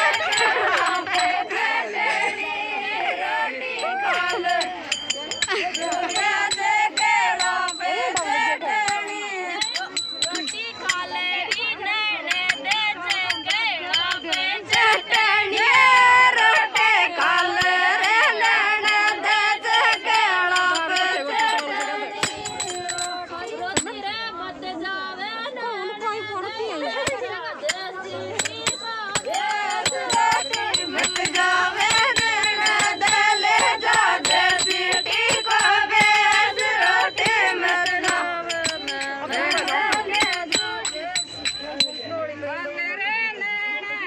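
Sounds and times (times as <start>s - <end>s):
person singing folk song: 0.0s - 44.0s
sharp percussive strikes: 3.8s - 11.7s, 12.3s - 23.9s, 28.4s - 42.3s.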